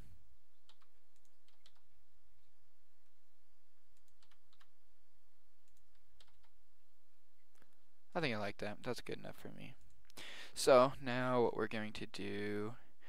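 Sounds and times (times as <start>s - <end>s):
computer keys and mouse clicks: 0.5s - 1.9s, 3.9s - 4.8s, 5.6s - 6.6s.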